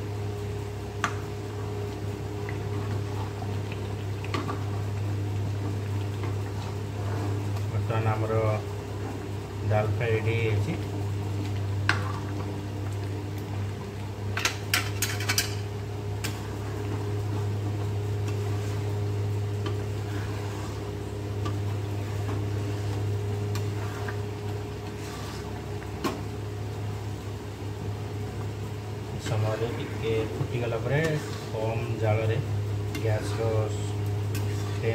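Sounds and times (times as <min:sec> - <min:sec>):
steady low hum: 0:00.0 - 0:34.9
thick dal bubbling: 0:00.0 - 0:34.9
spatula scraping a pan: 0:19.8 - 0:21.0, 0:21.9 - 0:24.2, 0:24.9 - 0:25.6, 0:31.0 - 0:31.7.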